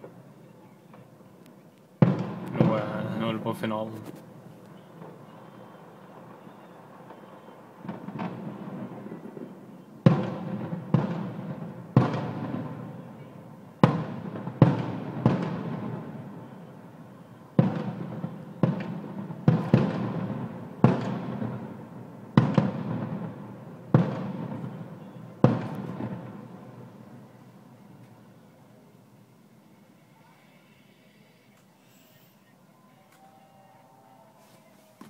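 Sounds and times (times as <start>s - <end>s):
firework shells bursting: 0.9s - 12.9s
rolling echo of bangs: 2.0s - 4.0s, 6.1s - 12.9s, 13.8s - 16.4s, 17.6s - 27.0s.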